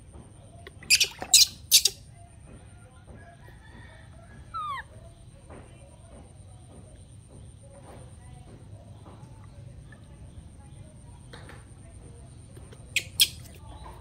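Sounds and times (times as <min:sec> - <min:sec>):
water splashing in a plastic basin: 0:00.6 - 0:02.1.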